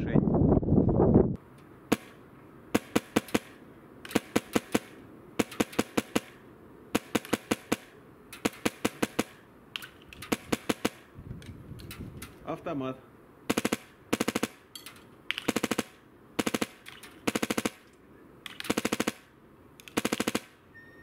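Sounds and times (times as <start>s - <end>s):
airsoft rifle firing sharp pops: 1.9s - 11.1s, 13.5s - 14.6s, 15.3s - 20.6s.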